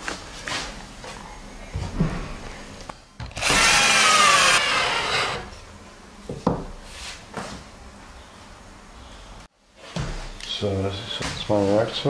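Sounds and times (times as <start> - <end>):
cordless drill whining: 3.4 - 5.5.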